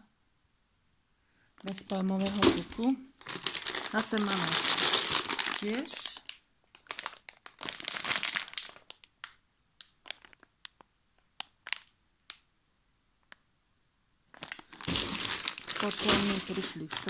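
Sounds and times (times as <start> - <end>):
plastic bag crinkling: 1.6 - 10.8, 11.4 - 12.0, 14.3 - 17.0.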